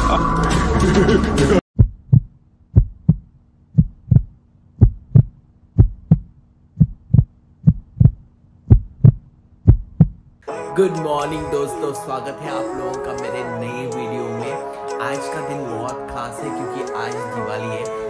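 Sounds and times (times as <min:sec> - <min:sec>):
heartbeat thumps: 0:01.8 - 0:10.3.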